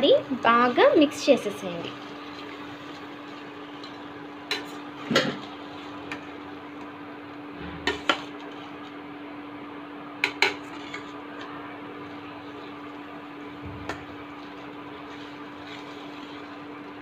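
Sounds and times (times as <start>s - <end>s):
steady low hum: 0.0s - 17.0s
metal spatula scraping a pan: 7.6s - 8.8s, 10.2s - 11.5s, 13.9s - 16.6s.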